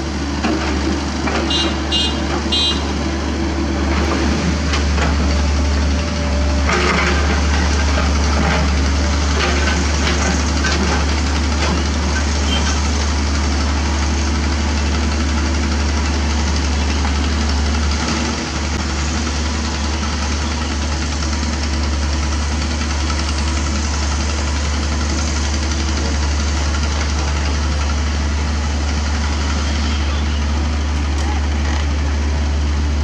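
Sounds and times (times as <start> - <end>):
excavator diesel engine running: 0.0 - 33.0.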